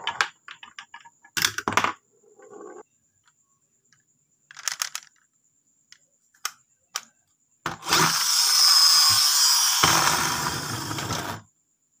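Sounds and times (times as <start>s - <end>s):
toy truck mechanism whirring: 7.7s - 11.5s.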